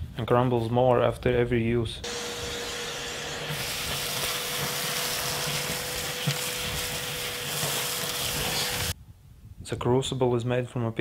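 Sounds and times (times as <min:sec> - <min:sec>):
vacuum cleaner running: 0:02.0 - 0:09.0
nozzle sucking up grit: 0:03.5 - 0:09.0.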